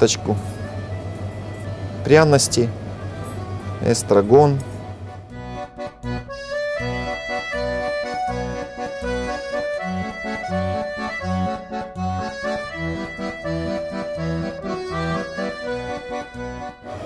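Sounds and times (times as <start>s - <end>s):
instrumental music with pulsing bass: 4.7s - 17.0s.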